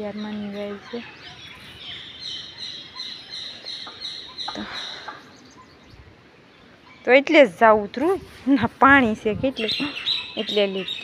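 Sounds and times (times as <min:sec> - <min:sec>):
small bird chirping: 0:00.0 - 0:07.4, 0:09.2 - 0:11.0.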